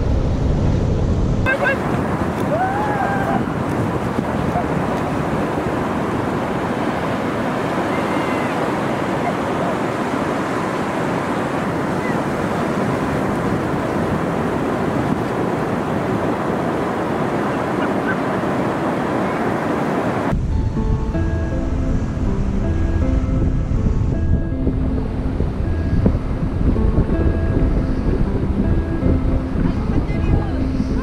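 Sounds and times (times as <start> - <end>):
surf washing onto a sand beach: 0.0 - 20.4
wind noise on the microphone: 0.0 - 31.0.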